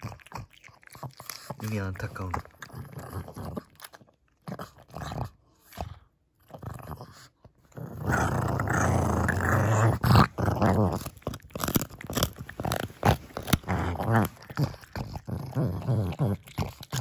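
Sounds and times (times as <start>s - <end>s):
dog growling: 0.0s - 17.0s.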